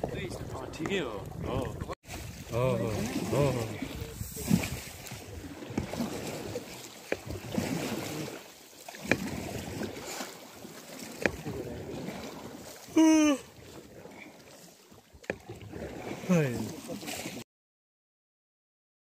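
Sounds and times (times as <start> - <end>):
oars knocking: 0.0 - 10.0, 10.9 - 12.2.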